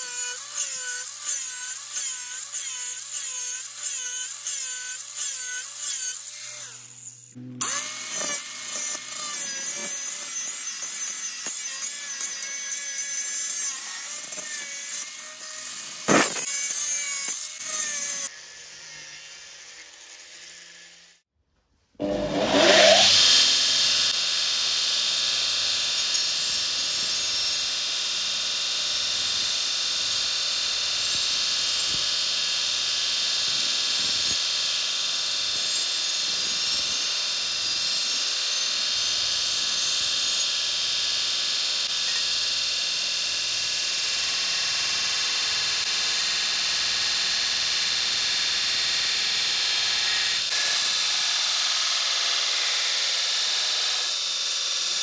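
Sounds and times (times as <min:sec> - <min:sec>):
belt grinder grinding steel: 0:00.0 - 0:21.2, 0:22.0 - 0:24.2.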